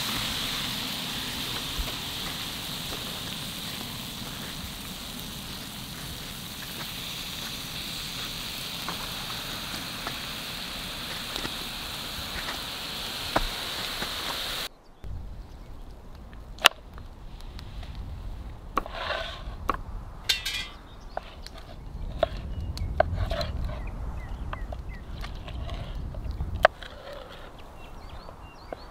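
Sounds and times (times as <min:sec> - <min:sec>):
steak sizzling on a griddle: 0:00.0 - 0:14.7.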